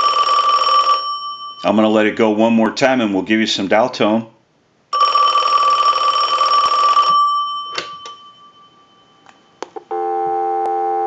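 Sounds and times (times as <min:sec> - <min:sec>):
telephone bell ringing: 0:00.0 - 0:01.7, 0:05.0 - 0:11.0
dial tone: 0:09.9 - 0:11.0.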